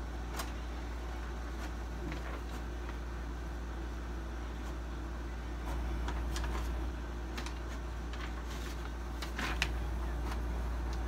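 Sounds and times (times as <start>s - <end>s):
steady low hum: 0.0s - 11.0s
paper rustling and clicks: 0.2s - 3.1s, 5.6s - 11.0s.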